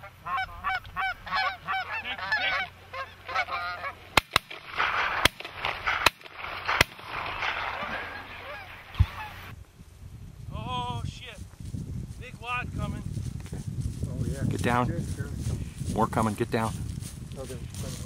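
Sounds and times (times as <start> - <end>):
geese honking: 0.0 - 9.6.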